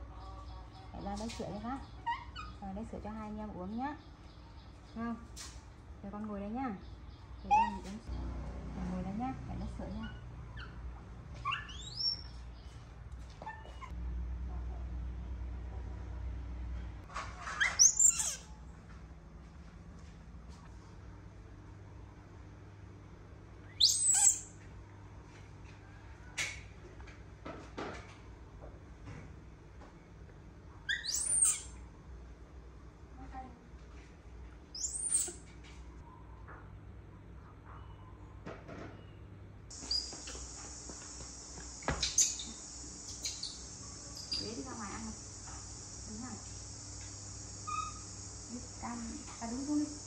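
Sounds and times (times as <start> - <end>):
monkey squealing: 11.4 - 12.2, 17.6 - 18.4, 23.8 - 24.4, 30.9 - 31.7, 47.7 - 48.1
insects chirring: 39.7 - 50.0.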